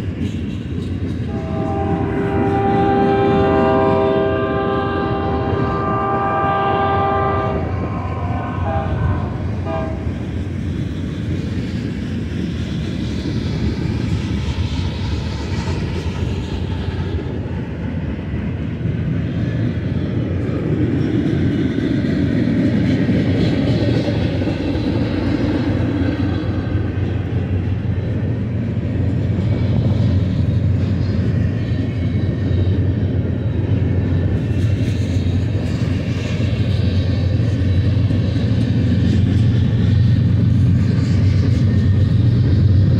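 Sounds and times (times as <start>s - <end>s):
steel wheels rumbling on rail: 0.0s - 42.9s
locomotive air horn: 1.3s - 10.1s.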